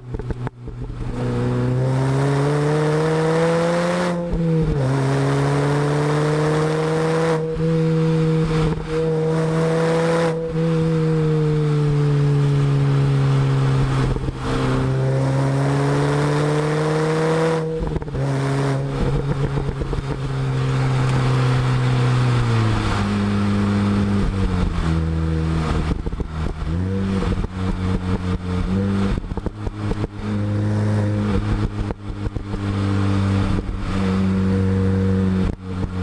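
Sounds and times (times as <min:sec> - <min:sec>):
exhaust crackling pops: 0:00.0 - 0:01.3, 0:13.9 - 0:14.5, 0:17.5 - 0:32.8, 0:35.3 - 0:36.0
car exhaust revving: 0:00.0 - 0:36.0.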